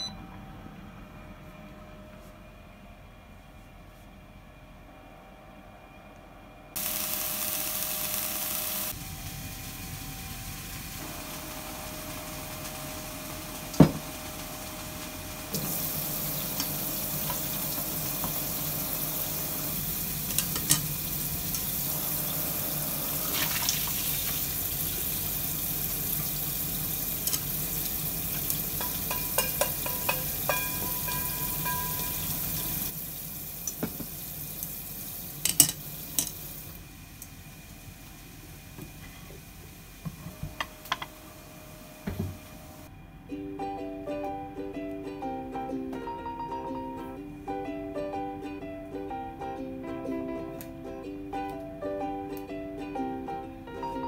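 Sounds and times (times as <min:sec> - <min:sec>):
vegetables sizzling in frying pan: 0:06.8 - 0:41.5
pot and utensils clinking: 0:28.3 - 0:32.9, 0:35.4 - 0:36.4.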